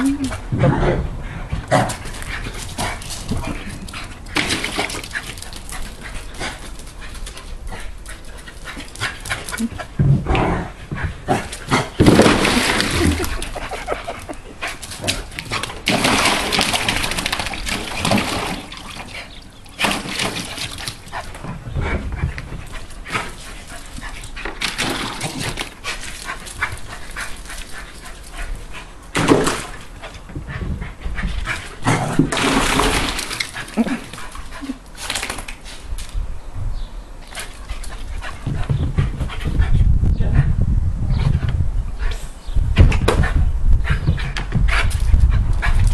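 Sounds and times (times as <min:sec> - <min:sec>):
low rumble: 0:00.0 - 0:04.0
dog splashing water: 0:03.9 - 0:07.0, 0:11.9 - 0:13.8, 0:15.0 - 0:21.4, 0:32.2 - 0:34.4.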